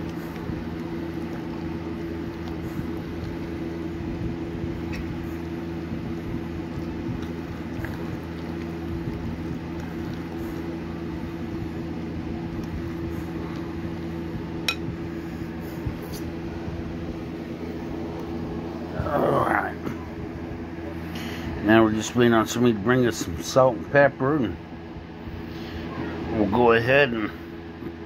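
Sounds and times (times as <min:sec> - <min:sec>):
filling squishing while stirred: 0:00.0 - 0:14.8
low hum: 0:00.0 - 0:28.0.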